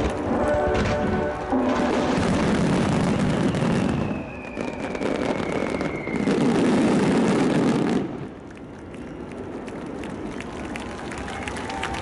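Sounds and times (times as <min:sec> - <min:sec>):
music: 0:00.0 - 0:02.6
fireworks bursting and crackling: 0:00.0 - 0:12.0.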